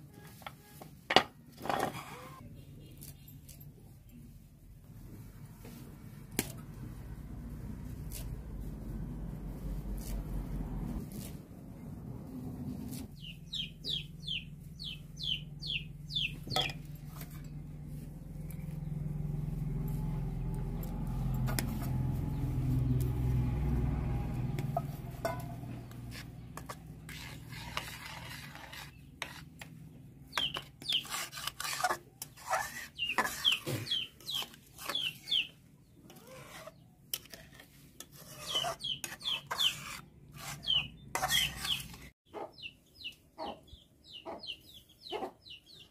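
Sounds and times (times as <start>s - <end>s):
ladle scraping a metal pan: 24.5s - 29.7s, 30.3s - 35.5s, 36.1s - 42.1s.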